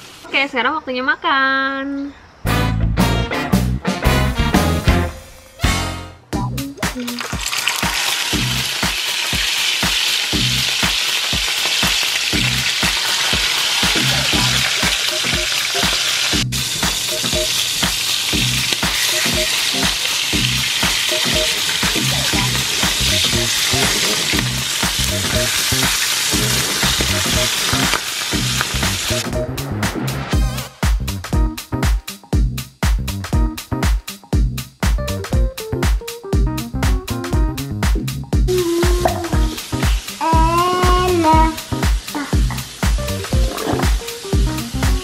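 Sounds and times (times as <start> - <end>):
music with steady beat: 2.5 - 45.0
fish sizzling in hot oil: 7.0 - 29.2, 38.7 - 45.0.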